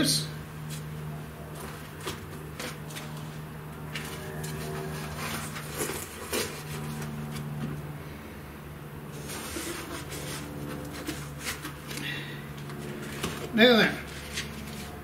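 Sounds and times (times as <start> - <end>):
steady low hum: 0.0 - 15.0
packing material rustling: 4.0 - 7.5, 12.9 - 15.0.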